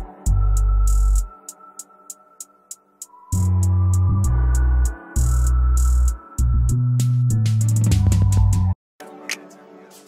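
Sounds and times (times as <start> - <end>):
ticking hi-hats: 0.0 - 1.3, 4.8 - 6.2
deep sustained bass line: 3.4 - 8.7.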